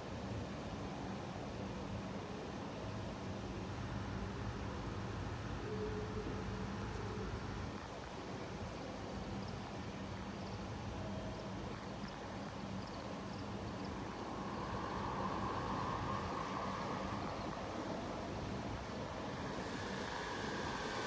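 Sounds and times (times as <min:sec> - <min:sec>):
road traffic: 0:13.6 - 0:21.0.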